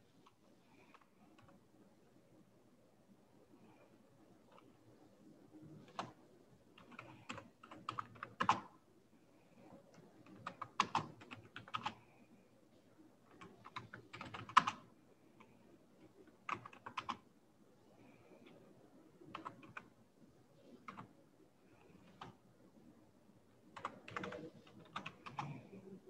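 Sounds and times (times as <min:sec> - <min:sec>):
computer keyboard typing: 0:05.8 - 0:06.2, 0:06.8 - 0:08.7, 0:10.2 - 0:12.0, 0:13.3 - 0:15.5, 0:16.4 - 0:17.2, 0:19.3 - 0:19.9, 0:20.8 - 0:21.1, 0:21.8 - 0:22.4, 0:23.8 - 0:25.7.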